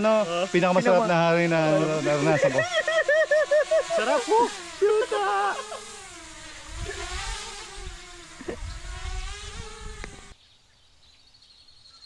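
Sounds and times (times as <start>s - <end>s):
small engine buzzing whine: 0.0s - 12.0s
wind rumbling on microphone: 6.4s - 10.3s.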